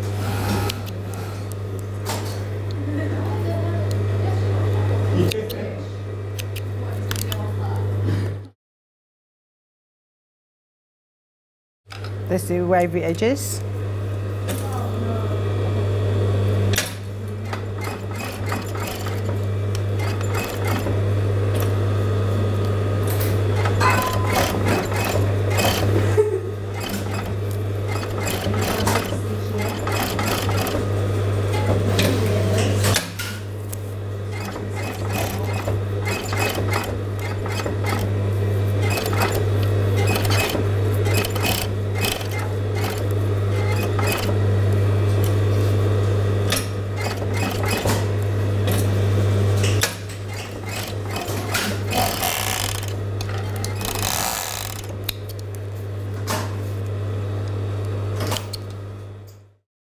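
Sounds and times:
sewing machine stitching: 17.4 - 21.7, 23.2 - 33.0, 34.3 - 38.2, 38.8 - 44.4, 46.5 - 48.1, 50.2 - 55.1.

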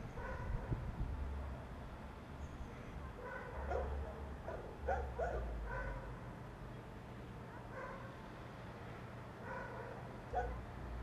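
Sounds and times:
dog barking: 0.2 - 0.8, 3.0 - 6.1, 7.5 - 8.1, 9.4 - 10.6.

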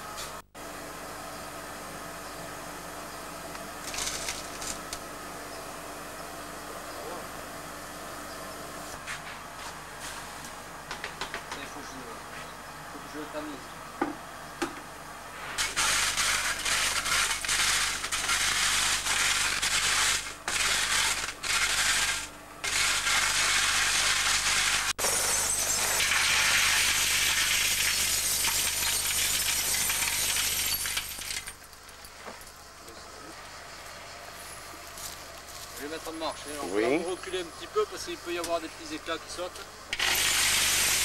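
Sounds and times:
broken glass clattering: 25.0 - 31.7.

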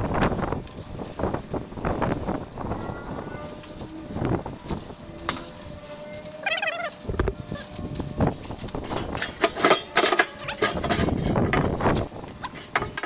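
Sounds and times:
metal plate clanking and scraping: 6.2 - 13.0.

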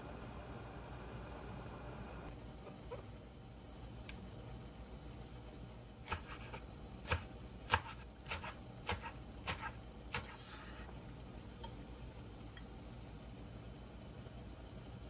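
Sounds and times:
knife chopping on cutting board: 6.1 - 10.6.

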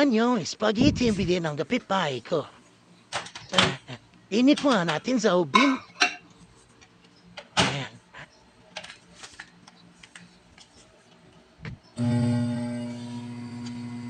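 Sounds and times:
microwave humming: 11.8 - 14.0.

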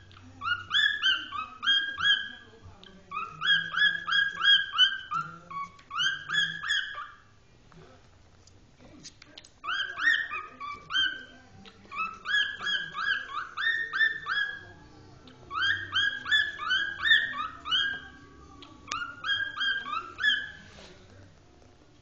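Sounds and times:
cockatiel whistling: 0.0 - 7.3, 9.6 - 14.8, 15.5 - 20.7.

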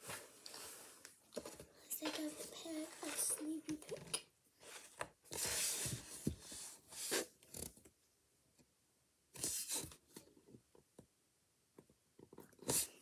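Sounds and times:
handling rustles and taps: 0.0 - 6.7.

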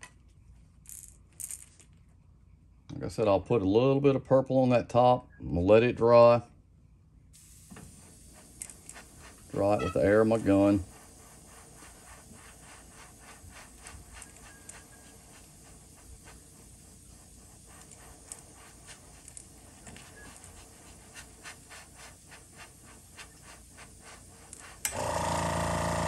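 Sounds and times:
airbrush hissing and puffing: 7.4 - 26.0.

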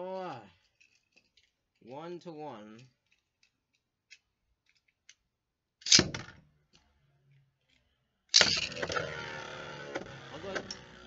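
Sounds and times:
sharp plastic clack: 5.8 - 6.4.

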